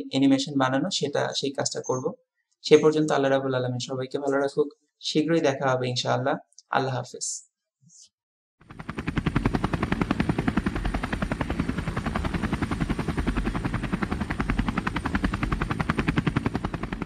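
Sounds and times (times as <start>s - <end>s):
propeller aircraft engine: 8.6s - 17.0s.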